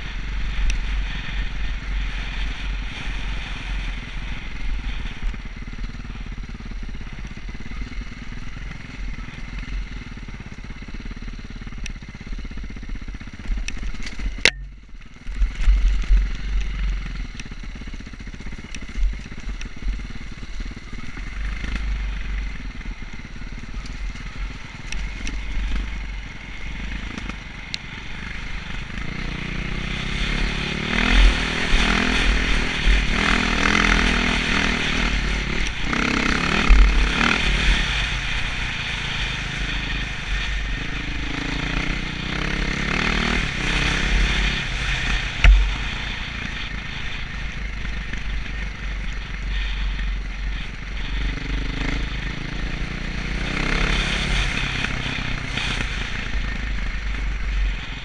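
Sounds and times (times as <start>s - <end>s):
dirt bike engine revving: 15.3s - 58.0s.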